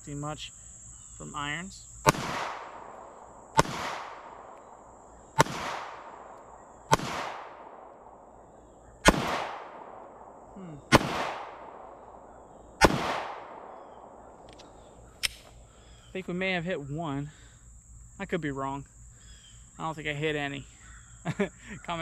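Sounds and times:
pistol shots with echo: 2.0 - 8.4, 9.0 - 14.5.

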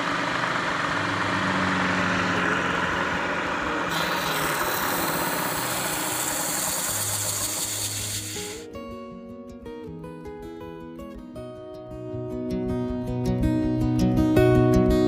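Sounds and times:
band saw wheel spinning: 0.0 - 8.6
sanding rubbing on wheel rim: 3.9 - 8.6.

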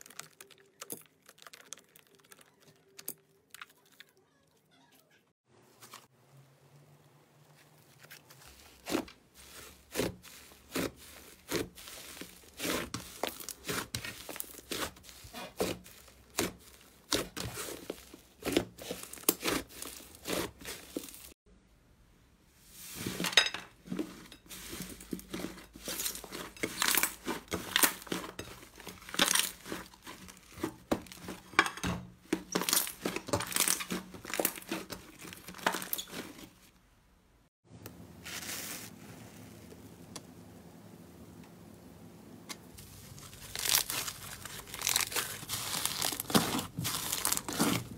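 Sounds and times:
slime crackling as kneaded: 0.0 - 4.1, 7.5 - 21.3, 25.8 - 31.5, 42.8 - 47.9.

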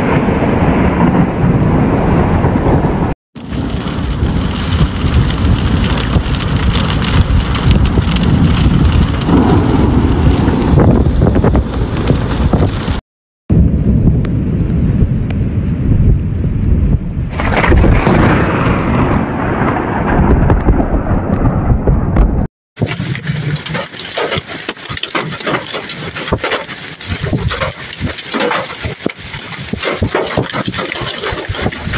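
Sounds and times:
wind buffeting microphone: 0.0 - 22.5, 24.9 - 31.9
low storm rumble: 0.0 - 31.9
hailstones pelting the ground: 3.4 - 13.0, 17.4 - 20.9, 22.8 - 31.9.

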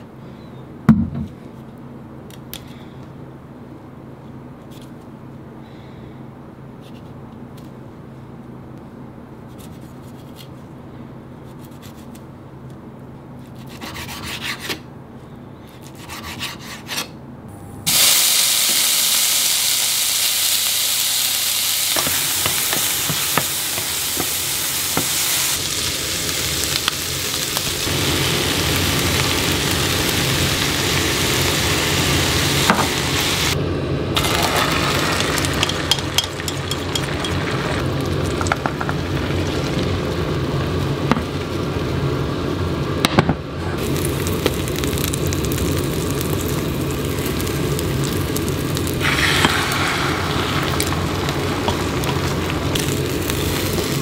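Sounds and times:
vegetables sizzling in a pan: 17.9 - 33.6, 34.2 - 42.3, 43.8 - 54.0.

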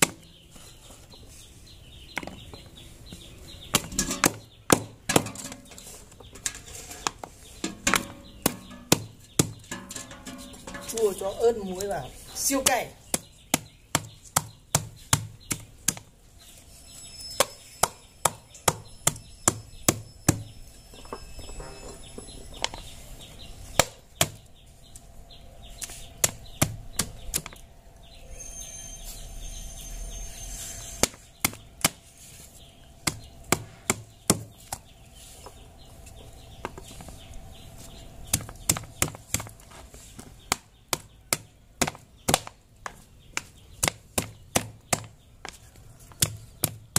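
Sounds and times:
wooden pestle pounding fruit: 7.7 - 11.1, 12.6 - 16.1, 38.2 - 39.6, 43.4 - 46.9.

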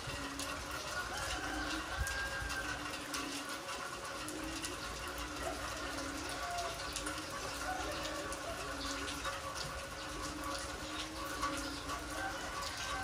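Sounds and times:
drips and splashes: 0.0 - 13.0
heavy rain on concrete: 0.0 - 13.0.

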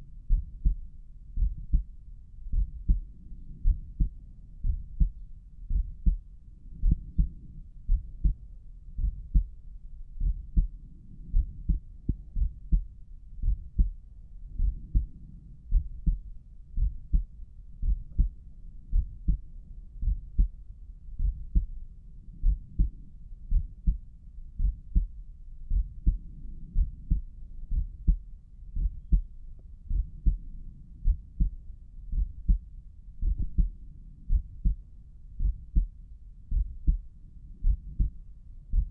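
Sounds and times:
heartbeat through stethoscope: 0.2 - 38.9.

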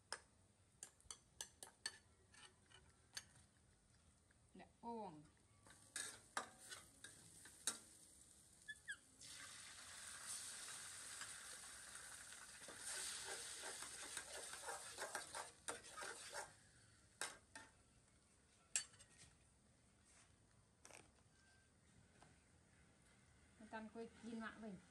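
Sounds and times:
metal spatula clinking and scraping: 0.8 - 3.3, 5.7 - 7.9, 12.7 - 16.5, 17.2 - 17.7, 18.7 - 19.2
egg sizzling in hot oil: 5.9 - 16.6.

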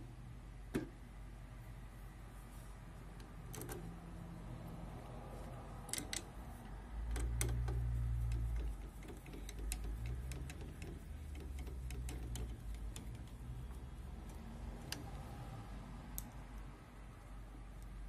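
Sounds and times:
screwdriver clicking on metal: 5.9 - 6.3, 7.1 - 13.4.

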